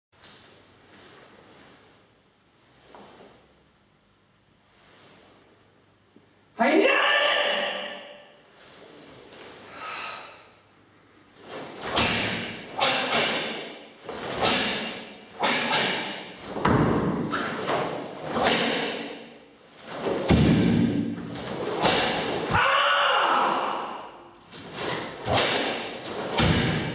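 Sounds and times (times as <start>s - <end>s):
bare feet thudding on mats: 16.5s - 17.9s, 20.0s - 22.5s, 25.2s - 26.9s.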